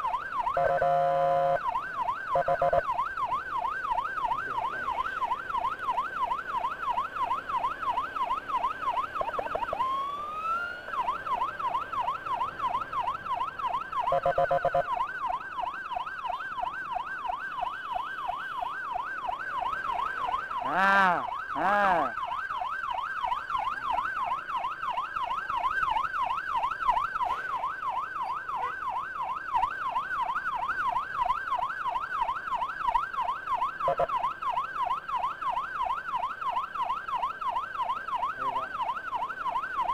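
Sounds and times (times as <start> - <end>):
emergency siren yelping: 0.0 - 39.9
horn blasts: 0.6 - 1.6.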